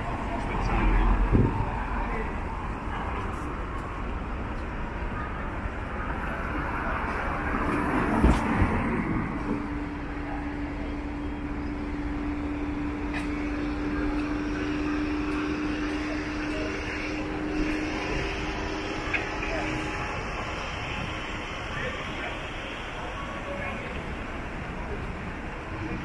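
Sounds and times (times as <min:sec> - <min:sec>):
passing vehicles: 0:00.0 - 0:26.0.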